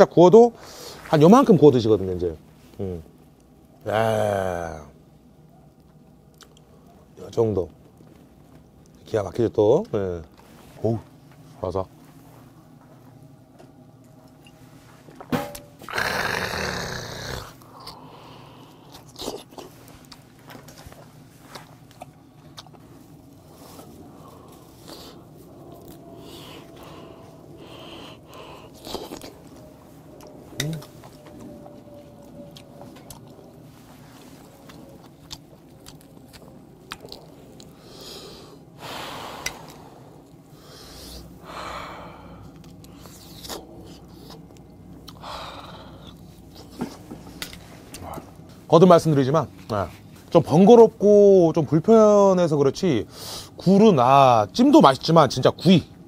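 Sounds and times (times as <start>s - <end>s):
chewing and lip-smacking: 5.8s - 7.1s, 17.5s - 37.9s, 42.5s - 45.2s
breathy bursts: 26.2s - 29.4s, 37.7s - 43.0s, 45.2s - 46.1s.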